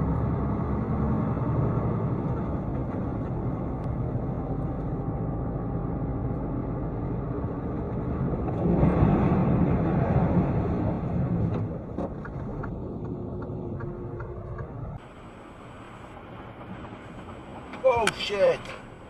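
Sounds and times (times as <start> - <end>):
car driving on road: 0.0 - 19.0.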